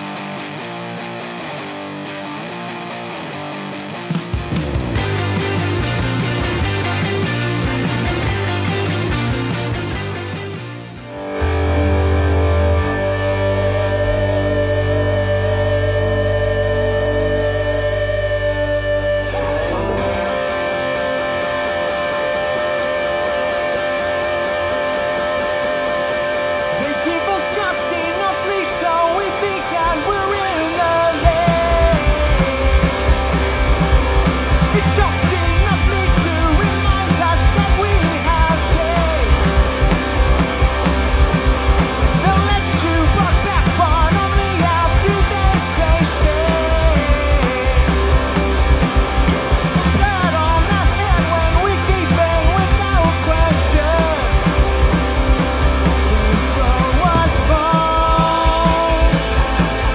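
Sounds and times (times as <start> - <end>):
punk rock band playing: 0.0 - 59.9
man singing: 26.7 - 33.5, 34.6 - 40.0, 42.1 - 48.4, 49.8 - 54.6, 55.8 - 59.8.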